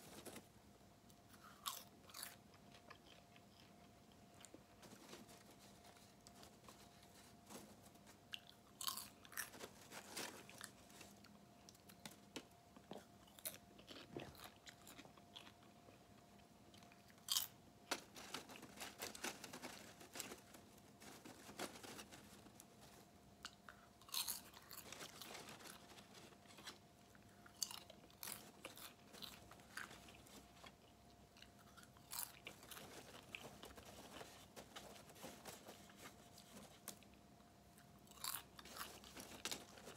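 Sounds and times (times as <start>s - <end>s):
faint steady hum: 0.0s - 39.9s
person chewing popcorn: 1.1s - 39.9s.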